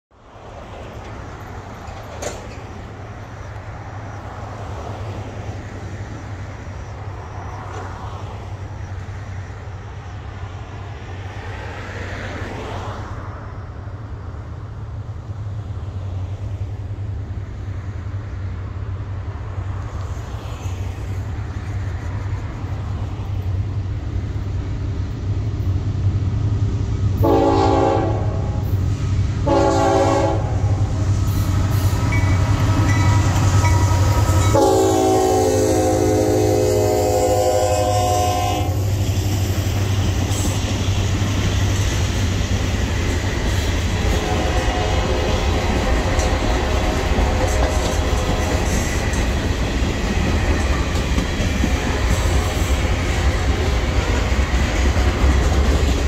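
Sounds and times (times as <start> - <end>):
diesel locomotive engine rumble: 0.1 - 56.0
locomotive horn blasts: 27.2 - 28.8, 29.4 - 30.9, 31.7 - 38.8, 44.1 - 47.9.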